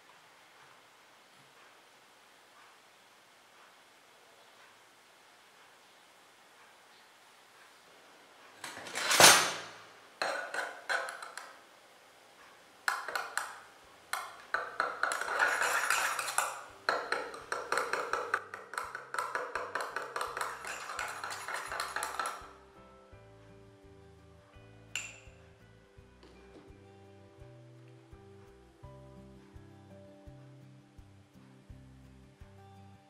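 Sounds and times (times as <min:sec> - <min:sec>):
spoon clinking against a mug: 0:10.2 - 0:11.6, 0:14.2 - 0:22.5, 0:25.0 - 0:25.4.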